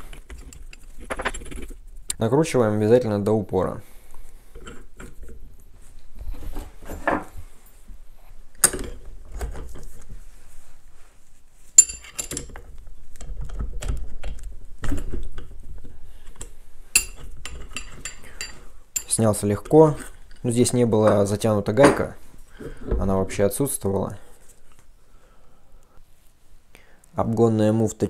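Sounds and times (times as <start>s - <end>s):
wrenches clinking on metal: 11.8s - 12.7s.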